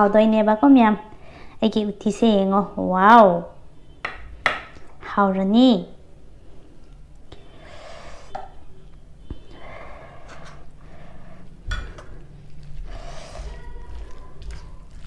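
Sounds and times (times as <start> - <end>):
soft breathing: 1.1 - 1.6, 6.3 - 8.3, 9.2 - 13.7
spoon scooping curry: 11.5 - 15.0.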